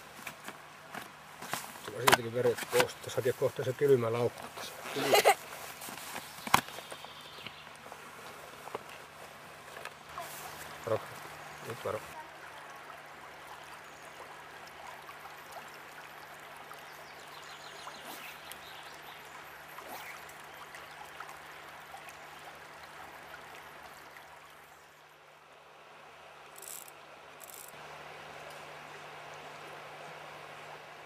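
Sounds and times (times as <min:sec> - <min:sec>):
river water flowing: 0:00.0 - 0:31.0
faint ticks: 0:26.5 - 0:27.8.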